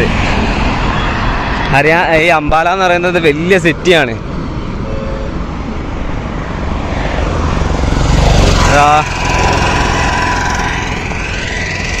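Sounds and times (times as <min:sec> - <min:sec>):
highway traffic: 0:00.0 - 0:12.0
vehicle passing close: 0:05.9 - 0:12.0.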